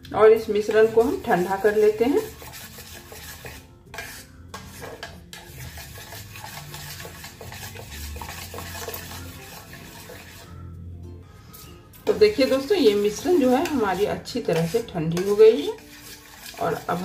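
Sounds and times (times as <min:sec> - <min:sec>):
metal spoon scraping saucepan: 0:00.3 - 0:10.7, 0:11.6 - 0:17.0.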